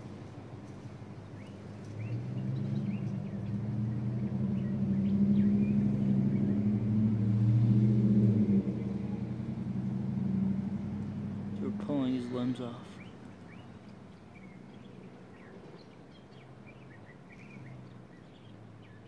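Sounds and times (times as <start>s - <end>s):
low steady motor hum: 0.0s - 18.6s.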